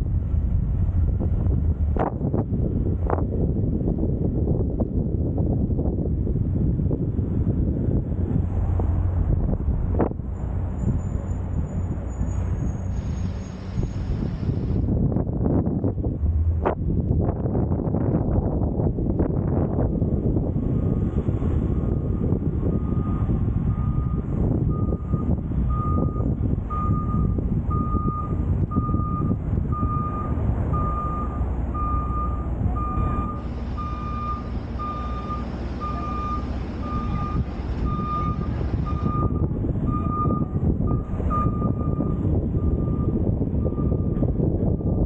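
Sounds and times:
road noise and wind: 0.0s - 45.0s
vehicle backup alarm beeping: 21.7s - 45.0s.

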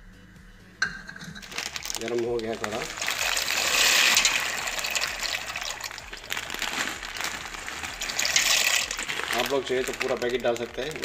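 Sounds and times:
rushing hissing water: 2.9s - 9.6s.

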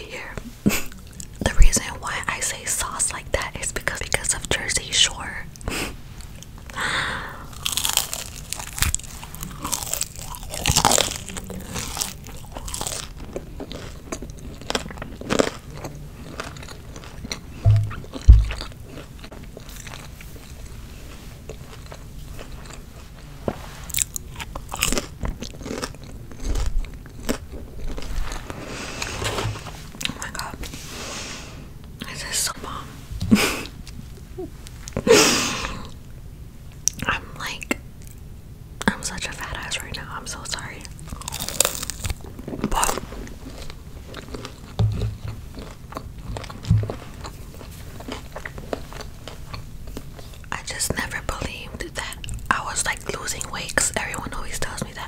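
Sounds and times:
crunchy chewing: 7.4s - 30.6s, 40.6s - 50.9s
mouth noises: 17.6s - 18.7s
dull low thumps: 17.6s - 18.8s, 44.7s - 45.6s, 46.3s - 47.3s.

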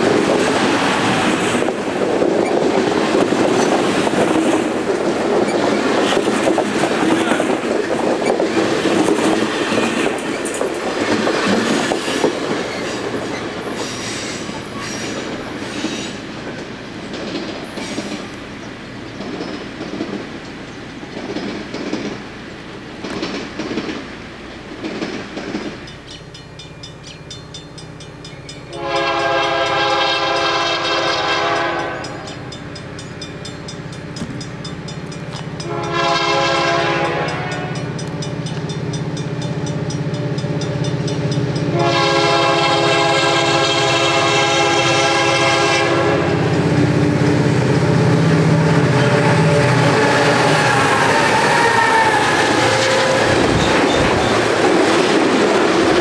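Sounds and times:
diesel locomotive drone: 0.0s - 56.0s
train wheels clickety-clack: 0.0s - 56.0s
train air horn blasts: 28.7s - 32.4s, 35.6s - 37.9s, 41.7s - 46.4s, 48.5s - 53.7s.

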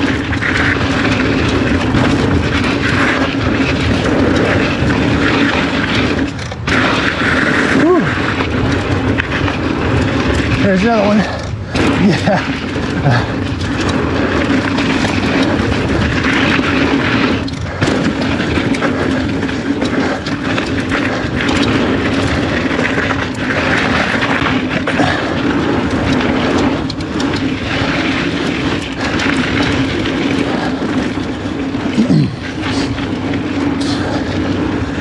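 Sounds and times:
bike knocking over bumps: 0.0s - 35.0s
bike tyres rumbling over gravel: 0.0s - 35.0s.

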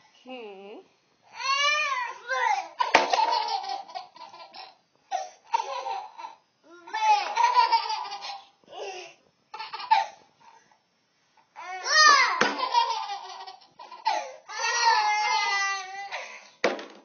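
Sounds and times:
small child laughing: 2.8s - 4.8s, 5.5s - 9.0s, 9.6s - 10.2s, 12.3s - 16.0s.

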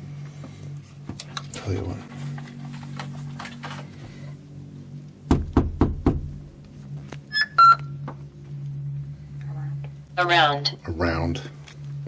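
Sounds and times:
fist knocking on door: 5.3s - 6.3s.

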